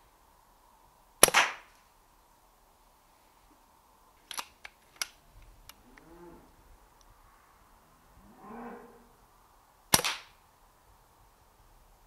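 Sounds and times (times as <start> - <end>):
air rifle shot: 1.2 - 1.7, 9.9 - 10.4
rifle action metallic clicks: 4.2 - 5.8.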